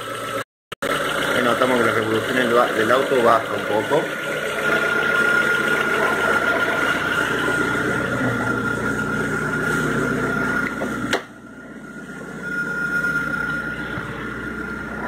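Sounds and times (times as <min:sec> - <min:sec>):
car engine idling with whine: 0:00.0 - 0:15.0.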